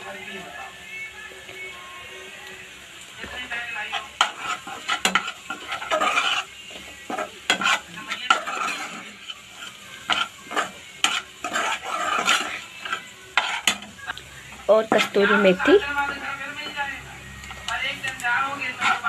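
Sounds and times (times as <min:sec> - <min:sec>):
food sizzling: 0:00.0 - 0:19.0
metal spoon scraping metal pan: 0:03.8 - 0:15.9, 0:17.5 - 0:19.0.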